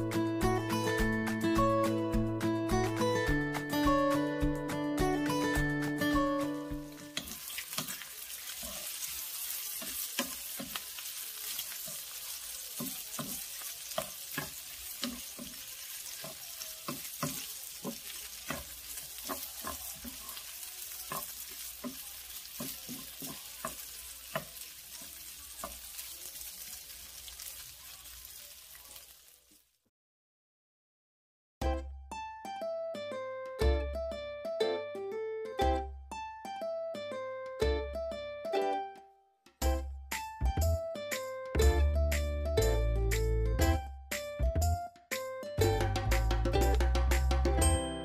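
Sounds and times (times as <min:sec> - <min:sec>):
meat sizzling in a frying pan: 0:06.8 - 0:29.8.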